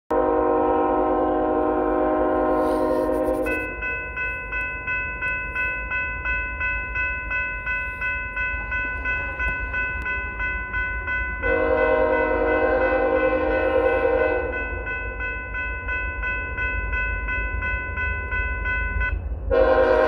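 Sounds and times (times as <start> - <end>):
locomotive horn: 0.1 - 3.6, 11.4 - 14.6, 19.5 - 20.0
train rumbling: 0.1 - 20.0
crossing bell ringing: 0.2 - 20.0.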